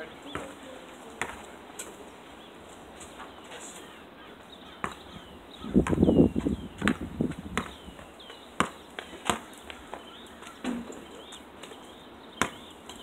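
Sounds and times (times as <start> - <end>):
basketball bouncing on asphalt: 0.3 - 0.6, 1.2 - 1.4, 4.8 - 10.9, 12.4 - 13.0.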